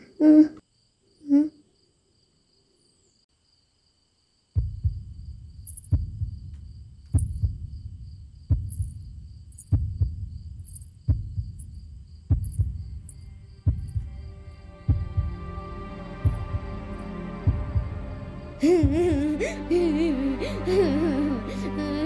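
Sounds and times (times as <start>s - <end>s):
person sobbing: 0.0s - 0.6s, 18.5s - 22.0s
low heartbeat-like thuds: 4.6s - 19.4s
low rumble: 4.6s - 21.3s.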